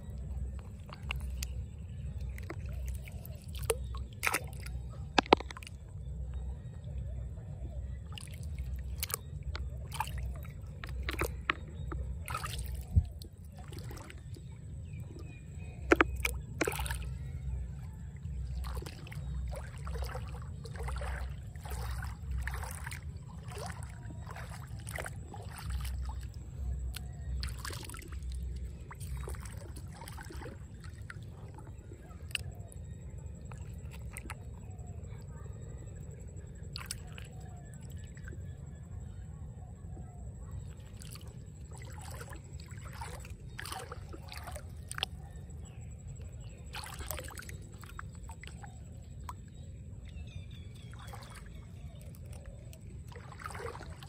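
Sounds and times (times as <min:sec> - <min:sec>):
low steady rumble: 0:00.0 - 0:54.0
hand splashing in muddy water: 0:00.1 - 0:05.9, 0:08.0 - 0:14.5, 0:15.2 - 0:17.6, 0:18.3 - 0:32.8, 0:40.7 - 0:45.7, 0:46.4 - 0:54.0.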